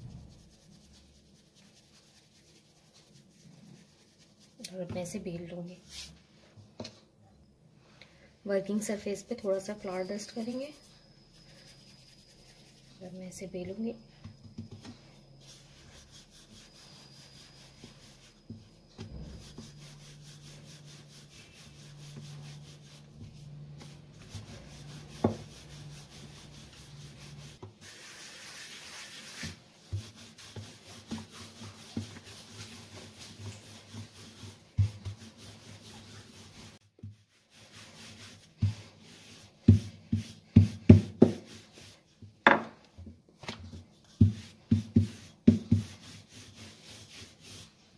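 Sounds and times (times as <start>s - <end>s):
dough rubbing: 0.0s - 6.6s, 8.6s - 47.9s.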